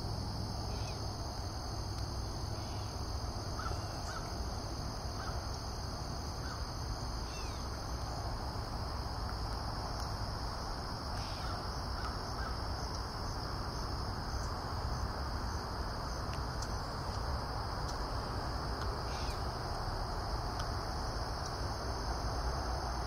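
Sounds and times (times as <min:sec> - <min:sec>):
high-pitched insect drone: 0:00.1 - 0:08.7, 0:10.4 - 0:12.8, 0:19.0 - 0:19.6.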